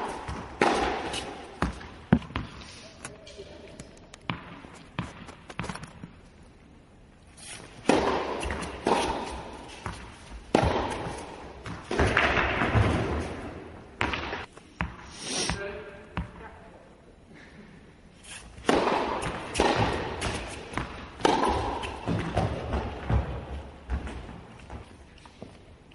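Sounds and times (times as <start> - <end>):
tennis ball bouncing on court: 0.0 - 2.6, 4.3 - 6.1, 7.8 - 13.2, 14.0 - 15.0, 18.6 - 24.8
racket hitting tennis ball: 0.0 - 3.3, 4.3 - 6.2, 7.4 - 15.6, 18.4 - 24.8.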